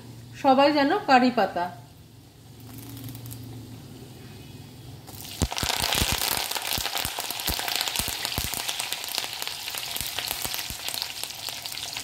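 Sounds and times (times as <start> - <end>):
mustard seeds popping: 2.6 - 3.5, 5.1 - 11.6
leaves sizzling in hot oil: 5.1 - 12.0.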